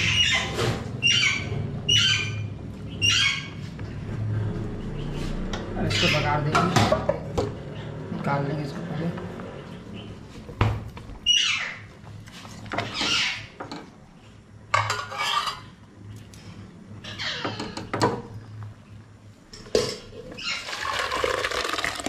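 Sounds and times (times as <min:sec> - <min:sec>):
ladle scraping and clinking on pot: 0:14.8 - 0:15.7
thick liquid being poured: 0:20.6 - 0:22.0.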